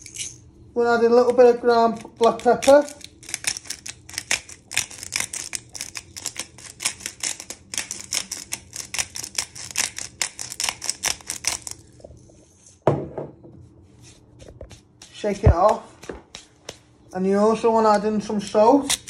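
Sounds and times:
pepper grinder clicking: 0:01.3 - 0:11.8
thump: 0:12.8 - 0:13.4.

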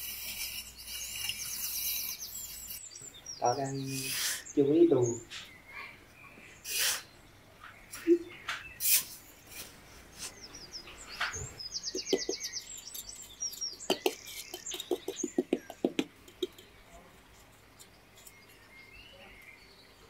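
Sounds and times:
trowel scraping sand: 0:00.0 - 0:03.0, 0:03.8 - 0:04.5, 0:06.7 - 0:07.0, 0:08.8 - 0:10.5
small birds chirping: 0:00.0 - 0:20.0.

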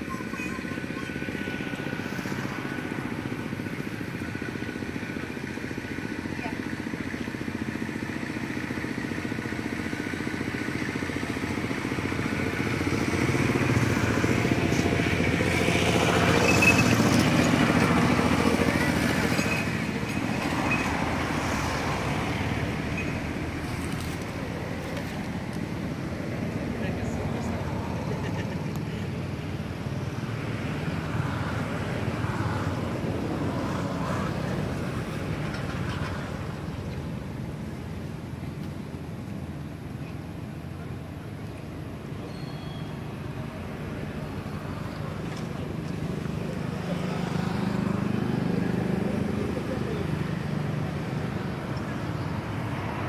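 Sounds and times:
motorcycle engine running: 0:00.0 - 0:32.2.

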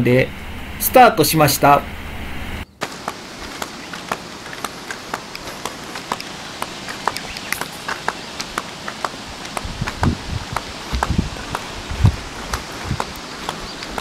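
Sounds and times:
background hiss: 0:00.0 - 0:14.0
footsteps on asphalt: 0:02.8 - 0:14.0.

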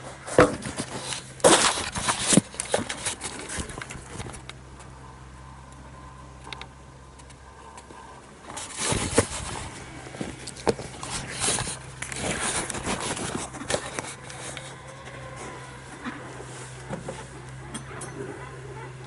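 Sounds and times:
low steady hum: 0:00.0 - 0:19.0
cloth rubbing on microphone: 0:08.6 - 0:14.6.

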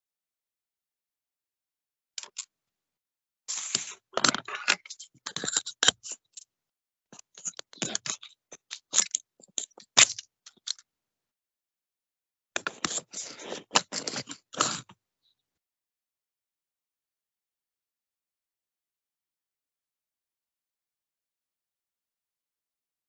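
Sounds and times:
scratchy clicks and scraping: 0:03.5 - 0:06.4, 0:07.2 - 0:10.8, 0:12.6 - 0:15.0.

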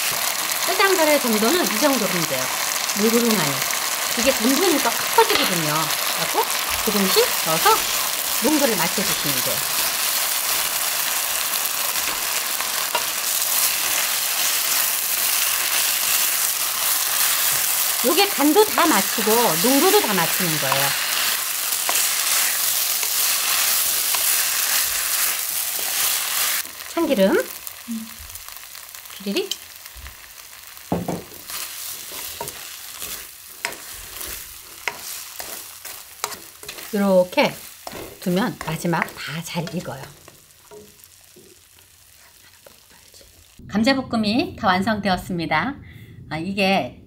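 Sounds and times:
food sizzling in a wok: 0:00.0 - 0:43.6
spatula tapping a pan: 0:30.9 - 0:31.5
spatula scraping a pan: 0:31.4 - 0:41.1.

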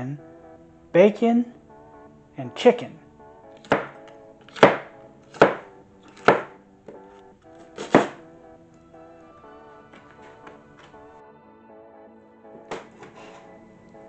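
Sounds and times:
background music: 0:00.0 - 0:14.0
knife chopping on wooden board: 0:03.6 - 0:07.0, 0:07.8 - 0:08.2.

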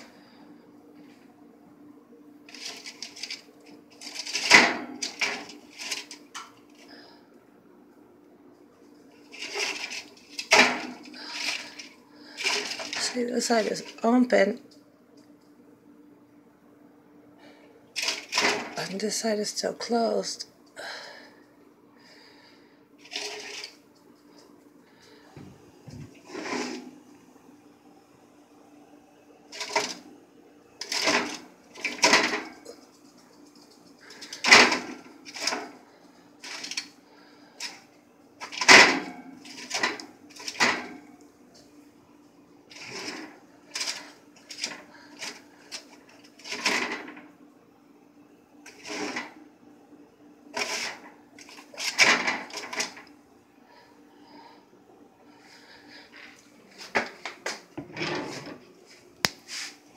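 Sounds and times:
steady low hum: 0:00.0 - 0:59.9
metal pan and rack clattering: 0:04.0 - 0:06.2, 0:09.3 - 0:14.0, 0:18.0 - 0:18.8, 0:30.8 - 0:32.8, 0:34.1 - 0:35.8, 0:38.4 - 0:41.0.

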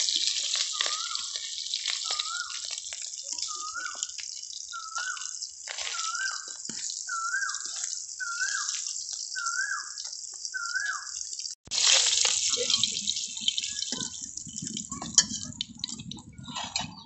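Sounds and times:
bird whistling slurred note: 0:03.4 - 0:04.0, 0:04.7 - 0:05.3, 0:05.9 - 0:06.5, 0:07.1 - 0:08.7, 0:09.4 - 0:10.0, 0:10.6 - 0:11.1.

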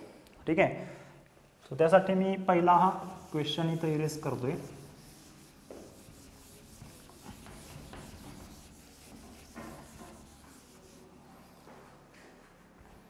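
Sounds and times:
eraser scrubbing whiteboard: 0:02.7 - 0:12.0.

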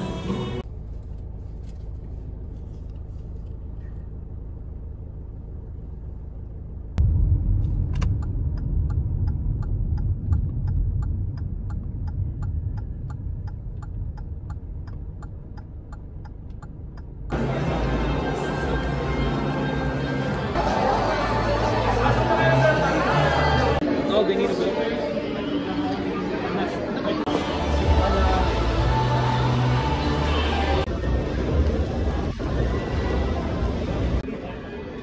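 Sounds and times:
car interior rumble: 0:00.0 - 0:20.6
turn signal ticking: 0:07.0 - 0:17.4.

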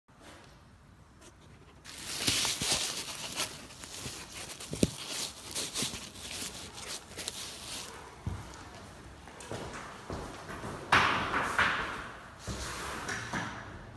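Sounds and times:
phone rustling against clothing: 0:01.2 - 0:08.8.

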